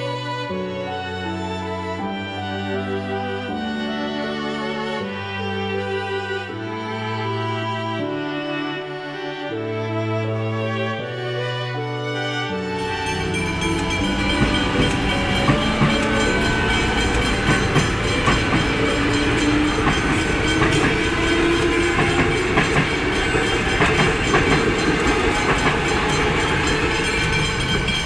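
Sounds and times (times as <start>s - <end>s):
crossing warning bells ringing: 12.6s - 28.0s
train motor whine: 12.8s - 28.0s
train wheels clattering over rail joints: 13.0s - 28.0s.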